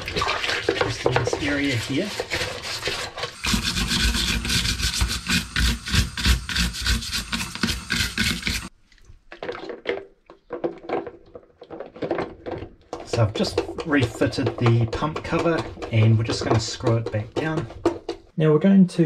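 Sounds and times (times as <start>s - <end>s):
brush scrubbed under running water: 0.0s - 8.8s
plastic brush scrubbing: 0.0s - 8.8s, 12.8s - 18.3s.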